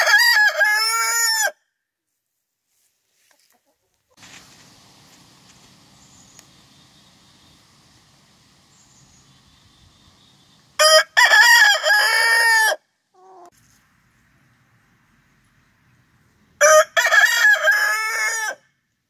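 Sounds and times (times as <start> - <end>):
rooster crowing: 0.0 - 1.6, 10.8 - 13.5, 16.6 - 18.6.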